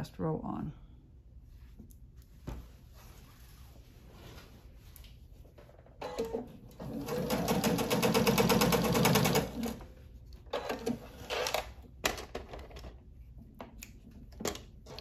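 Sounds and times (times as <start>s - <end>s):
fabric handling: 1.4s - 5.6s
sewing machine stitching: 6.0s - 9.8s.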